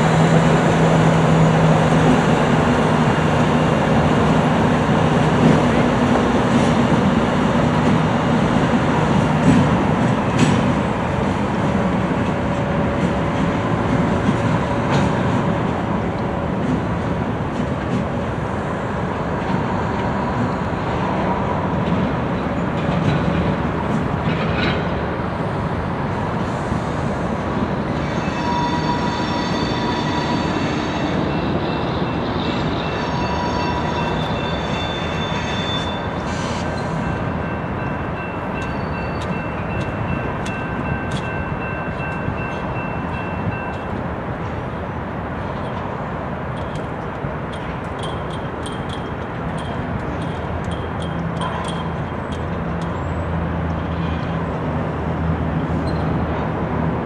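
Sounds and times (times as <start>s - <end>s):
locomotive engine and rolling rumble: 0.0s - 57.0s
high-pitched wheel squeal: 28.0s - 36.9s
wheels clicking over rail joints: 46.5s - 54.4s.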